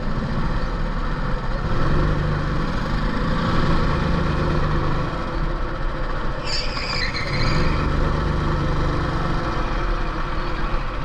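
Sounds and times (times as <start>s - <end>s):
go-kart engine idling: 0.0s - 11.0s
brief high-pitched squeal: 6.4s - 7.9s.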